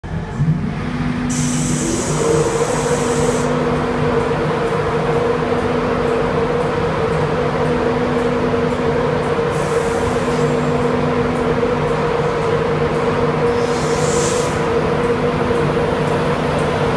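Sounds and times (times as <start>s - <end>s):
electric locomotive humming: 0.0s - 16.9s
high hiss: 13.6s - 14.6s.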